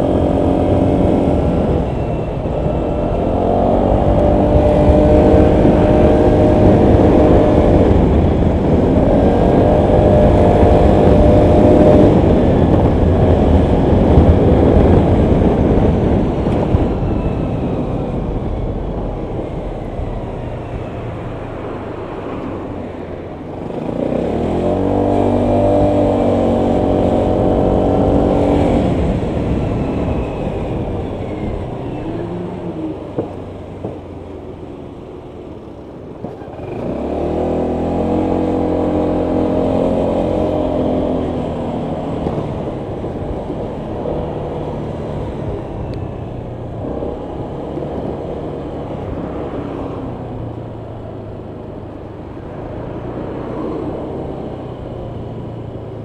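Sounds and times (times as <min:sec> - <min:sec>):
scooter engine accelerating: 0:00.0 - 0:56.0
wind and road noise: 0:00.0 - 0:56.0.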